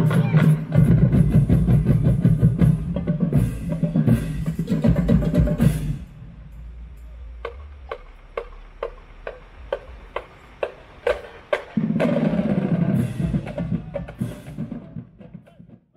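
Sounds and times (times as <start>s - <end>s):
marching band burst: 0.0s - 15.8s
cymbal crash: 1.2s - 14.6s
percussion clicks keeping time: 6.4s - 12.3s.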